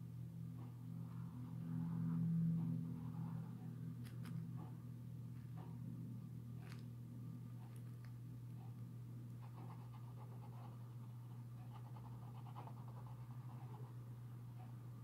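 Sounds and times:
steady low hum: 0:00.0 - 0:15.0
marker pen scratching on paper: 0:09.4 - 0:10.8, 0:11.6 - 0:14.0.

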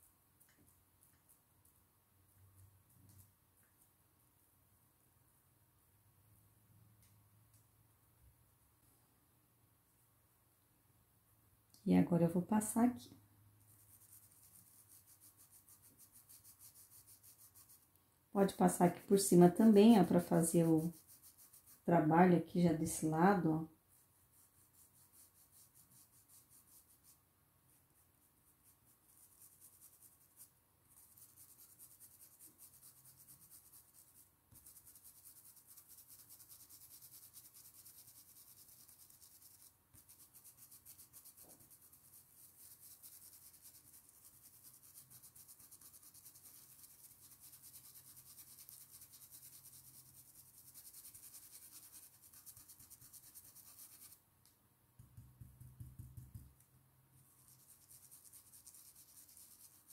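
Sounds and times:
paintbrush rubbing on fabric: 0:13.6 - 0:22.0, 0:22.8 - 0:54.2, 0:55.0 - 0:56.5, 0:57.2 - 0:59.9.

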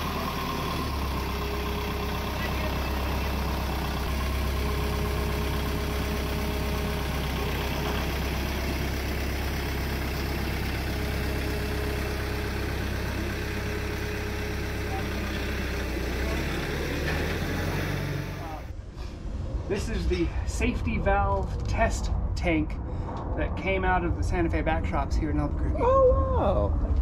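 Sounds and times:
tractor diesel engine droning: 0:00.0 - 0:18.8.

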